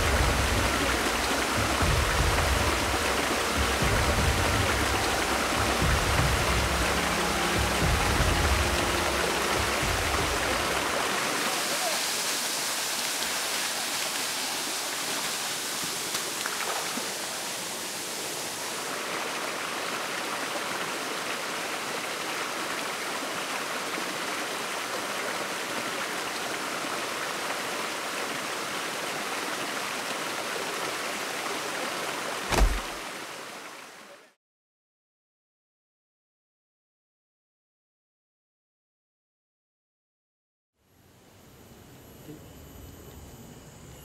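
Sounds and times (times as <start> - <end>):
waterfall and stream rushing: 0.0 - 34.4
sharp bang: 32.5 - 33.0.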